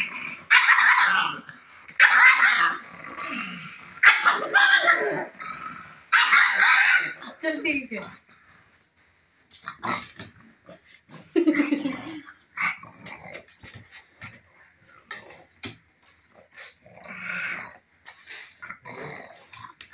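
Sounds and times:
dog growling: 0.0 - 7.4, 9.5 - 19.9.

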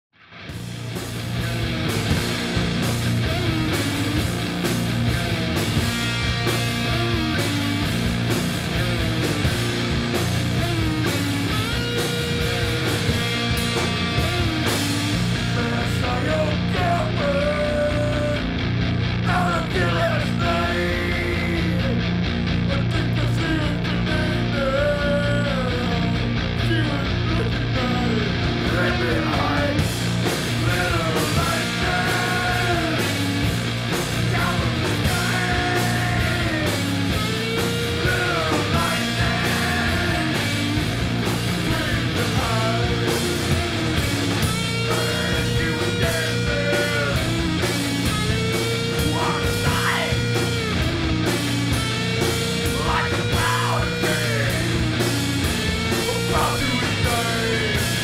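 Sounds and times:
rock band music: 0.2 - 58.0
sliding lead melody: 29.7 - 58.0.

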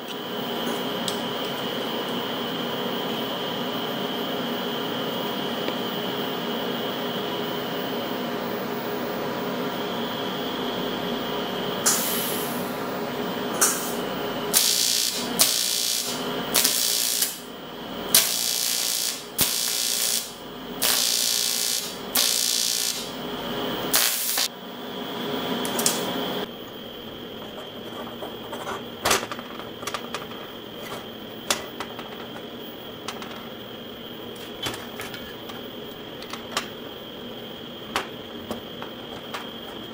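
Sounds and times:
welding arc hissing: 11.8 - 12.7, 13.5 - 17.5, 18.1 - 24.5
electrical buzz: 13.5 - 24.5.

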